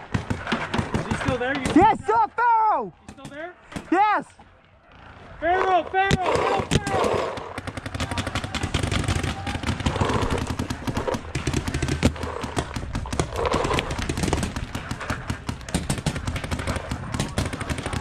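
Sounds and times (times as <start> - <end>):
paintball markers firing: 6.1 - 18.0.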